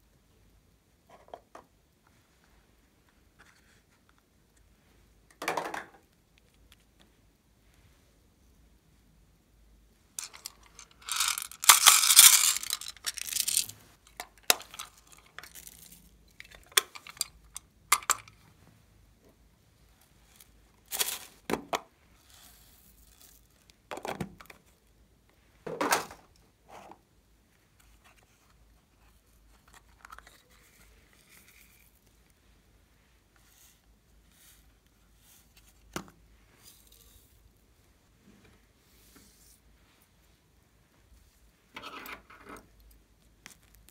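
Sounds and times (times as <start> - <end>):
plastic boxes rustling and clicking: 10.2 - 18.4.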